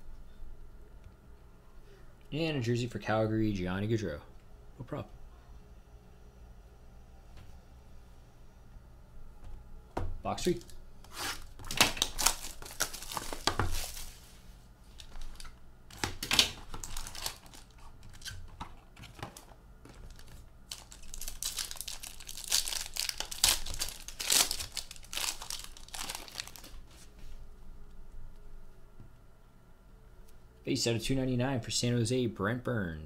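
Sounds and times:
plastic wrapping crinkling and tearing: 10.4s - 14.3s, 14.9s - 27.1s.

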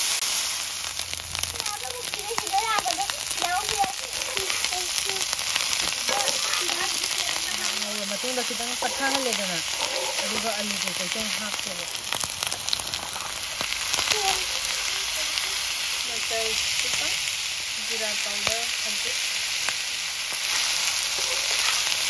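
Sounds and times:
food sizzling in frying pan: 0.0s - 22.0s.

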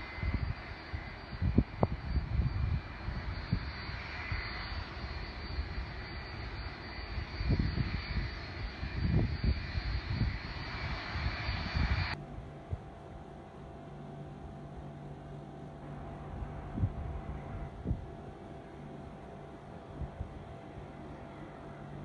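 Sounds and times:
wind buffeting microphone: 0.0s - 13.0s, 16.3s - 18.3s, 19.9s - 20.7s
distant jet engines rushing: 0.0s - 13.3s, 15.6s - 22.0s.

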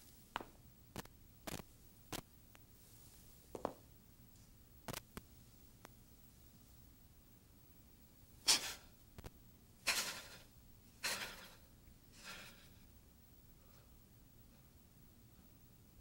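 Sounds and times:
sharp forceful breaths: 8.4s - 8.9s, 9.9s - 12.8s.

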